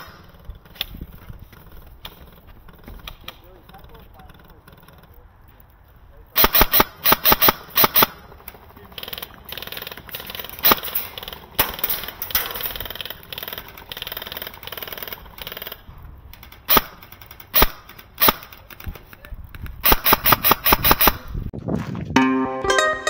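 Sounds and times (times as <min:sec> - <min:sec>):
airsoft guns firing: 0:06.4 - 0:15.8, 0:16.4 - 0:19.2, 0:19.8 - 0:21.3.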